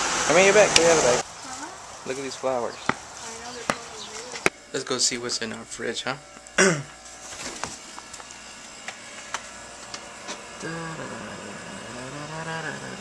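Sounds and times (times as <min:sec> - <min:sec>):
steady low hum: 0:00.0 - 0:13.0
man humming: 0:06.6 - 0:07.0, 0:10.6 - 0:13.0.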